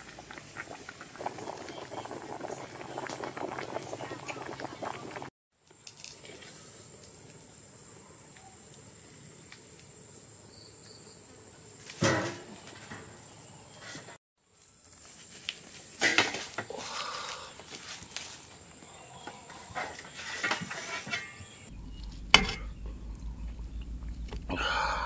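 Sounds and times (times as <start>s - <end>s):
ladle clattering on steel tray: 19.5s - 21.6s, 22.4s - 22.7s.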